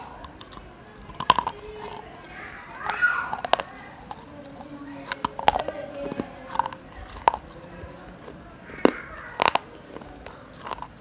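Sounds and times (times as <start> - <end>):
crunching bites into clay cup: 8.2 - 11.0.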